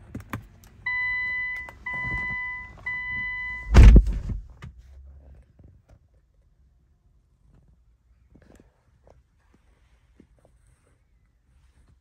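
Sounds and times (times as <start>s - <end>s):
car engine starting and rumbling: 0.0s - 5.3s
dashboard beeps: 0.9s - 4.0s.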